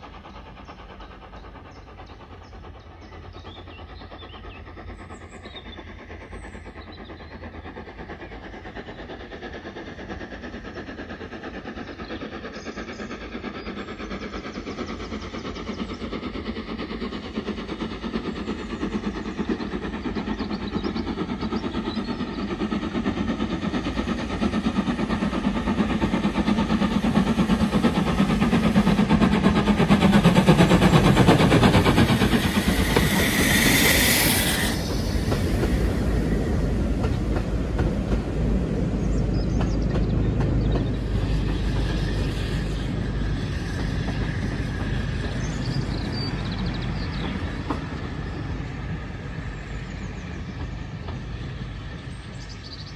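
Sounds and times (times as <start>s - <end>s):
steam locomotive chuffing: 0.0s - 52.9s.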